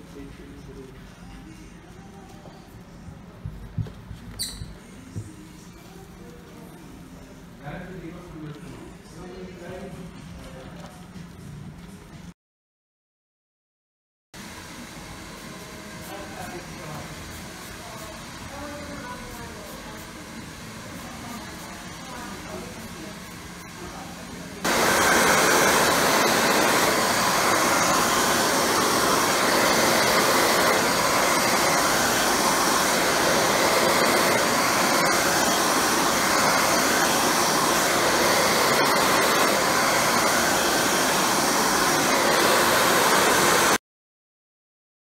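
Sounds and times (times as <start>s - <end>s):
hair dryer blowing: 14.4s - 43.8s.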